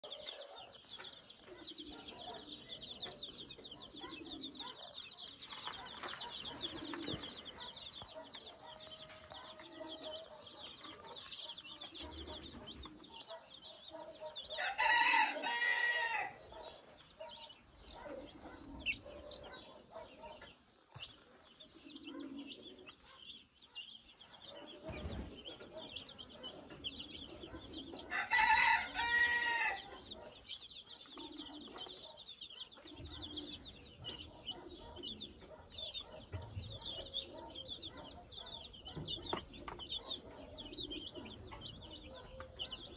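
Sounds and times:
hen clucking: 0.0 - 23.4, 24.3 - 42.9
chicks peeping: 0.0 - 42.9
rooster crowing: 14.4 - 16.4, 28.1 - 29.9.

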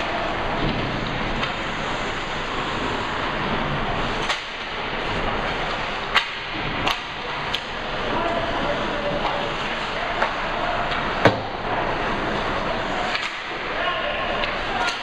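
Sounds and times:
hockey rink noise: 0.0 - 15.0
hockey stick hitting puck: 4.2 - 4.7, 6.1 - 7.7, 13.0 - 13.6.

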